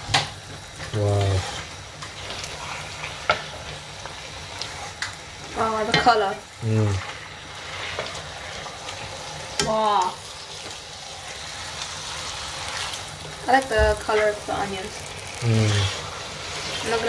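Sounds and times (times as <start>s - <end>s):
meat and onions sizzling in oil: 0.0s - 17.0s
spatula scraping a pot: 1.4s - 3.8s, 5.7s - 9.6s, 14.0s - 17.0s.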